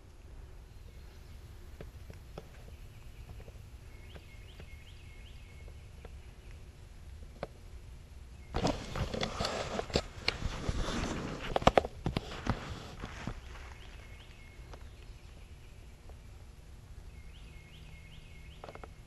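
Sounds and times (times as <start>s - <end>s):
faint high bird chirps: 0.6s - 6.7s, 13.4s - 16.3s, 17.0s - 19.0s.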